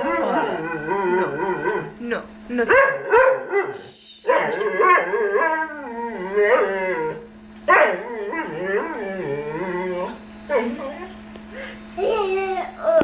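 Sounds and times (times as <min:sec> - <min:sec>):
dog whining howl: 0:00.0 - 0:02.0, 0:03.5 - 0:11.0.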